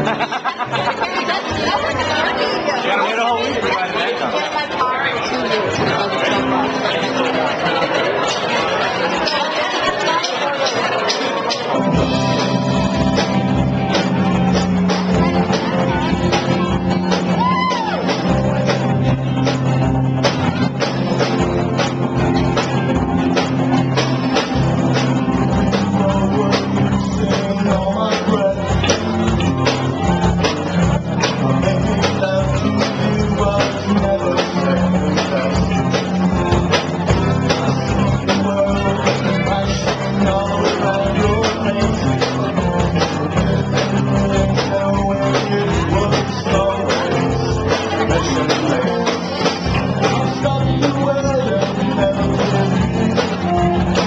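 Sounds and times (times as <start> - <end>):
drum kit steady beat: 0.0 - 2.8, 9.8 - 54.0
electric and acoustic guitars: 0.0 - 54.0
person singing: 11.0 - 19.6, 24.2 - 54.0.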